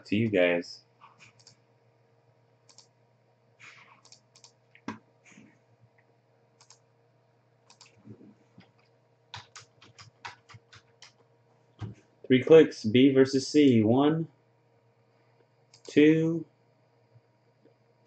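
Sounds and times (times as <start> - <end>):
faint steady hum: 0.0 - 18.0
keyboard typing: 1.0 - 1.6, 2.6 - 2.9, 3.6 - 5.4, 6.6 - 6.8, 7.7 - 12.0
mouse clicks: 2.7 - 2.9, 3.6 - 5.0, 6.6 - 6.8, 7.7 - 8.0.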